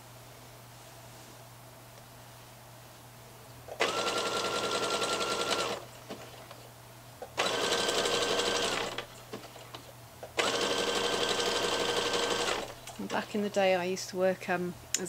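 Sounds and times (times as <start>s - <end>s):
sewing machine motor whine: 3.7s - 6.3s, 7.4s - 9.1s, 10.4s - 13.2s.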